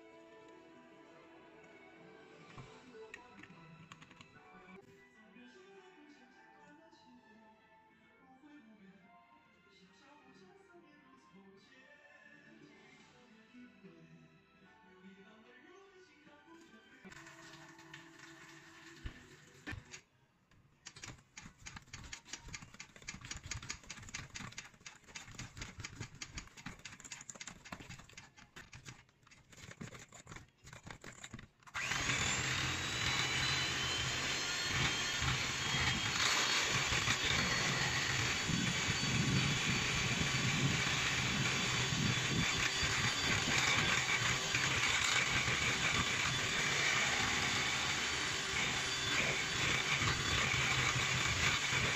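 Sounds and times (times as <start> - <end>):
electric milk frother whirring: 17.1 - 20.0, 20.9 - 29.0, 31.2 - 51.9.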